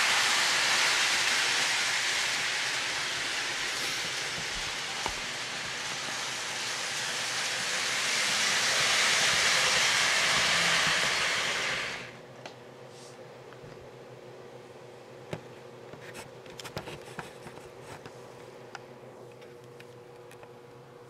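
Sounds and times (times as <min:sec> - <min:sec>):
model train rolling on track: 0:00.0 - 0:12.2.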